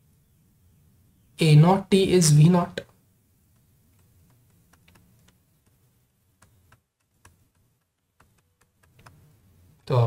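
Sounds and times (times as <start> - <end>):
stylus tapping on pen tablet: 6.4 - 9.2.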